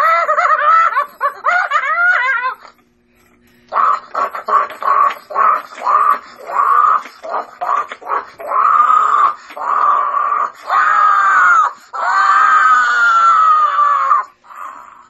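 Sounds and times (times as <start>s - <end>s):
monster screeches: 3.7s - 15.0s.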